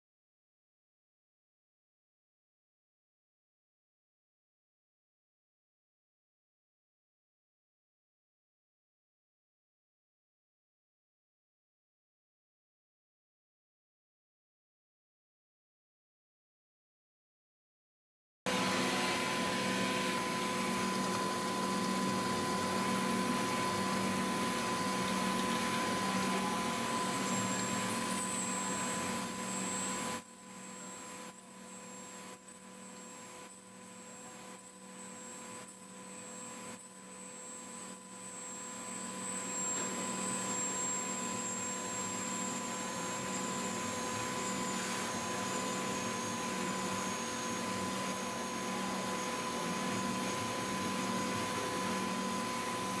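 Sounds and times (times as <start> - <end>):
grinding machine humming and whining: 18.5 - 53.0.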